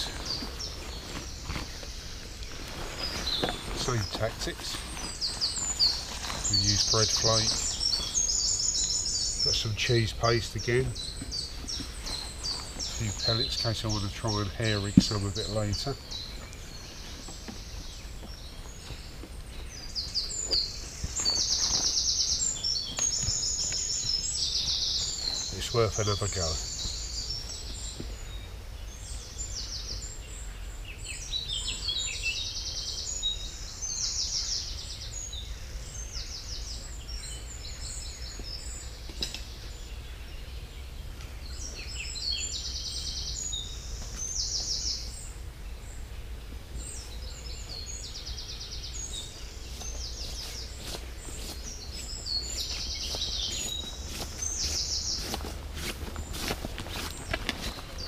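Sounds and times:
footsteps on grass: 0.0s - 8.6s, 11.0s - 16.0s, 16.6s - 28.2s, 49.1s - 58.0s
songbirds singing: 0.0s - 58.0s.

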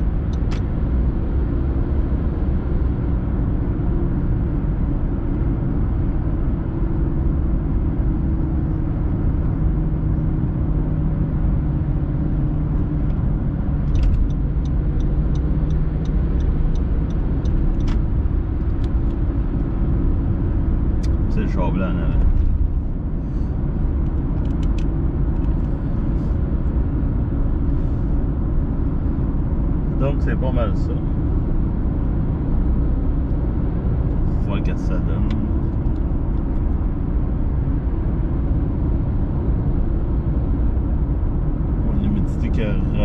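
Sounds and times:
car engine hum: 0.0s - 43.0s
turn signal ticking: 13.9s - 19.7s.

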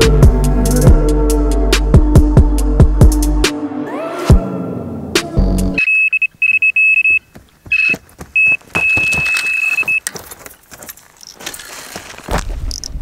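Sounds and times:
electronic bite alarm beeping: 5.8s - 10.0s
footsteps on stony ground: 7.0s - 13.0s.

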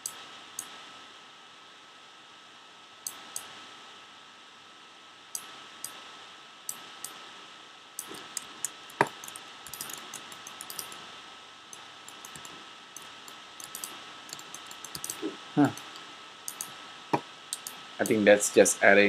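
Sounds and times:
steady hiss: 0.0s - 19.0s
keyboard and mouse clicks: 3.1s - 3.5s, 8.0s - 11.0s, 11.7s - 16.8s, 17.5s - 18.2s.

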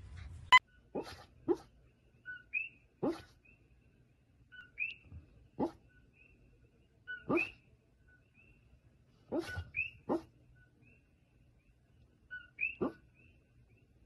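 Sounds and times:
dog yipping in sleep: 7.1s - 7.6s, 9.3s - 10.3s.

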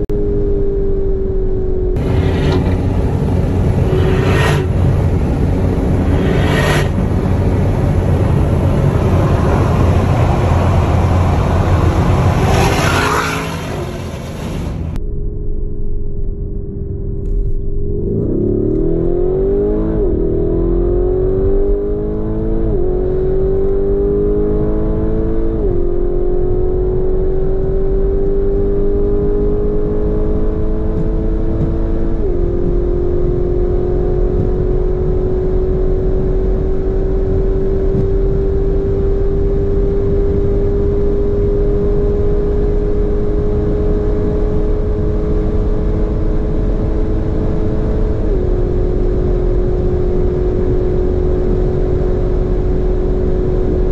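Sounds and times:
car engine accelerating hard: 0.3s - 15.0s, 17.2s - 53.9s.

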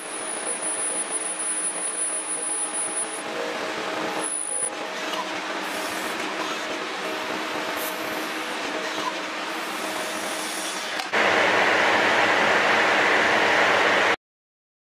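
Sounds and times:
hissing shop noise: 9.5s - 11.6s.

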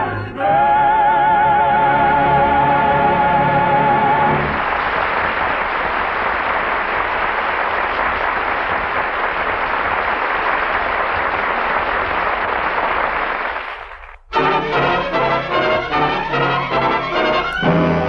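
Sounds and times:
audience applauding: 2.2s - 18.0s.

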